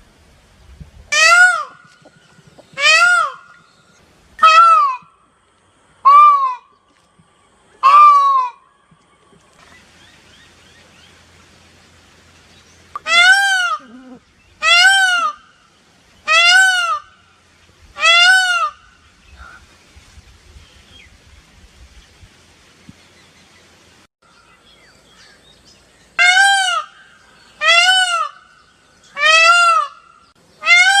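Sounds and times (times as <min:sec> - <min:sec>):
peafowl wailing calls: 0:01.1 - 0:03.7, 0:04.4 - 0:05.1, 0:06.0 - 0:06.8, 0:07.8 - 0:08.7, 0:13.0 - 0:15.6, 0:16.2 - 0:17.2, 0:18.0 - 0:19.7, 0:26.2 - 0:31.0.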